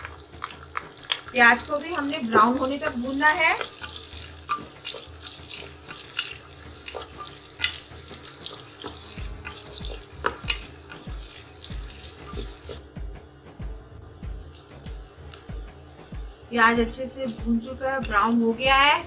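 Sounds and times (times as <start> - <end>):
onions sizzling: 0.0 - 19.0
pulsing low hum: 9.0 - 19.0.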